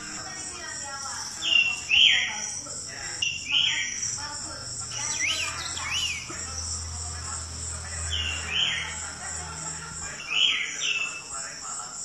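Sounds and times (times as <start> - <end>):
bird whistled calls: 3.2 - 4.1, 5.0 - 6.3.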